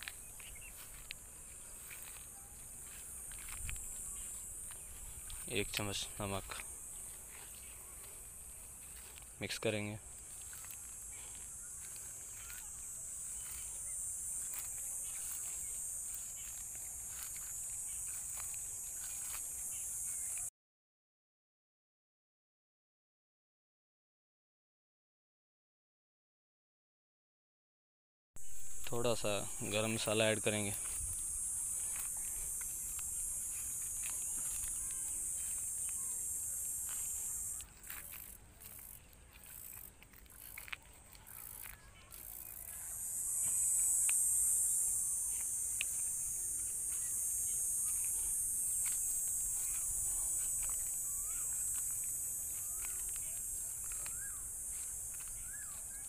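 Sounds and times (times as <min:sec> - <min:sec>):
high-pitched insect chorus: 0:00.0 - 0:20.5, 0:28.4 - 0:56.0.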